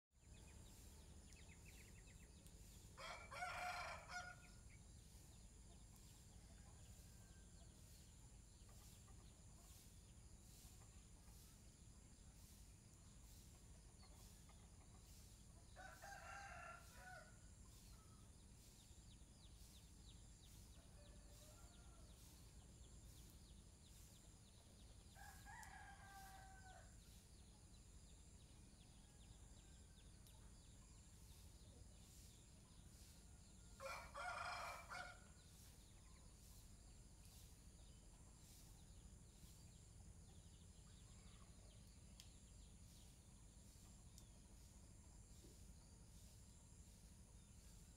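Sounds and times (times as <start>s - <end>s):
rooster crowing: 3.0s - 4.4s, 15.8s - 17.4s, 25.2s - 26.9s, 33.8s - 35.2s.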